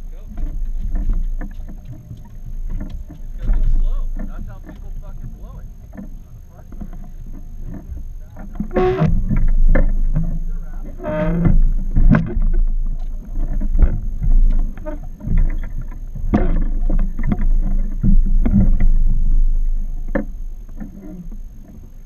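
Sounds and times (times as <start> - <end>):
boat engine low rumble: 0.0 - 22.0
knocks and thumps: 0.2 - 21.8.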